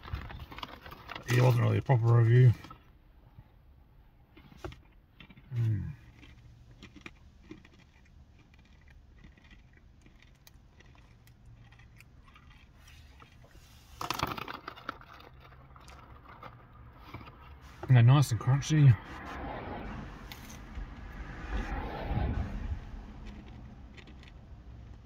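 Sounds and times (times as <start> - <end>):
peanuts being chewed: 0.0 - 3.0, 4.3 - 17.9, 23.0 - 25.0
snack bag rustling: 4.4 - 17.9.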